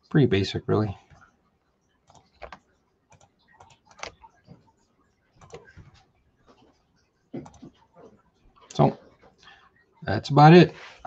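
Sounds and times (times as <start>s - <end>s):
computer mouse and keyboard clicks: 1.1s - 9.4s.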